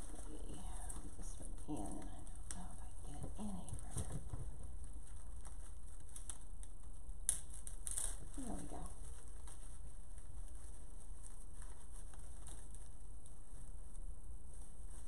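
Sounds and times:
artificial flower stems rustling: 0.0 - 15.0
steady low hum: 0.0 - 15.0.

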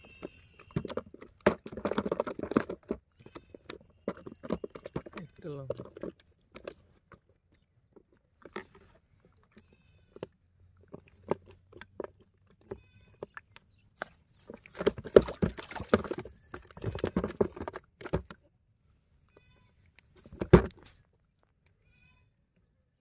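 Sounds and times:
fish slapping in plastic tub: 0.0 - 6.9, 11.1 - 18.4.

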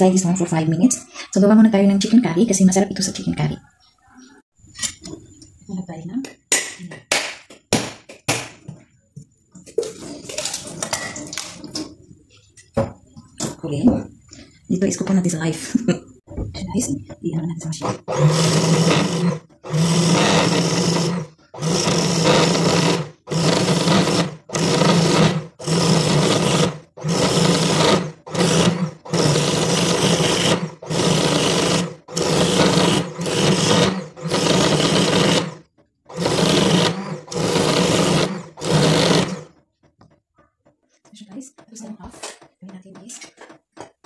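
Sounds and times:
electric coconut scraper grating: 17.8 - 39.6.

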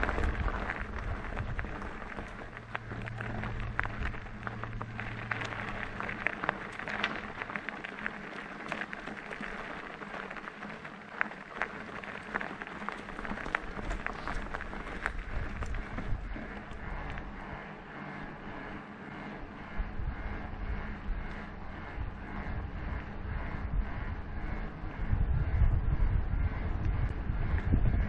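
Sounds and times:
clicks and knocks from bike: 0.0 - 17.3
bike tyres crunching: 0.0 - 25.0
low hum: 0.0 - 28.0.

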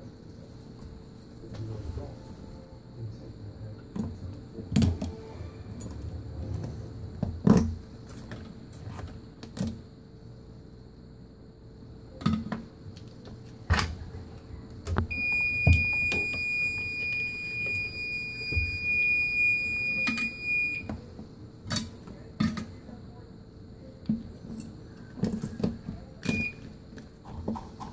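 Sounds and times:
high electronic beep tone: 15.1 - 20.9.

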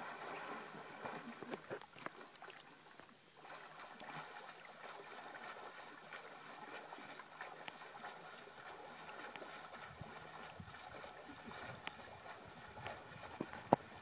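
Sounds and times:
light ticks and clicks: 7.6 - 7.8, 9.2 - 9.5, 11.8 - 14.0.

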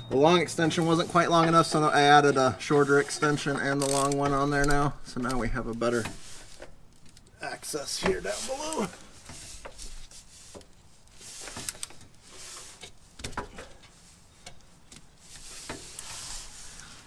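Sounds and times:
ratchet clicks and knocks: 3.6 - 5.4.

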